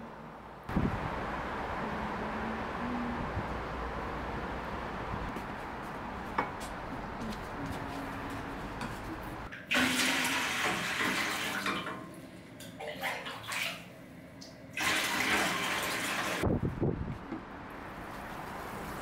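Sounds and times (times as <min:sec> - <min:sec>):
water pouring into metal can: 0:09.7 - 0:11.8, 0:14.8 - 0:16.4.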